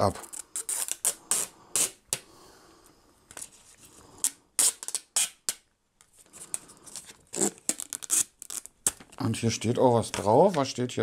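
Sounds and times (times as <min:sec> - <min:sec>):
plastic film peeling crackles: 0:00.0 - 0:01.9, 0:06.9 - 0:09.4.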